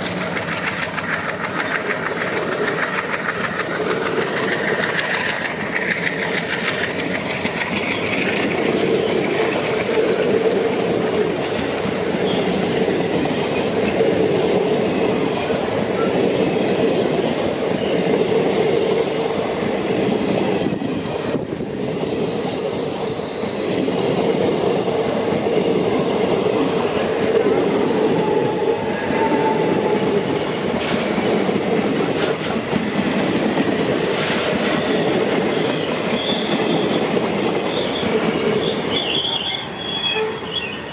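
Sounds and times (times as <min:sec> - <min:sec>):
train passing with rumble: 0:00.0 - 0:40.9
high wheel squeal: 0:12.2 - 0:13.1, 0:19.5 - 0:24.8, 0:26.9 - 0:31.2, 0:34.4 - 0:37.0, 0:37.7 - 0:40.9.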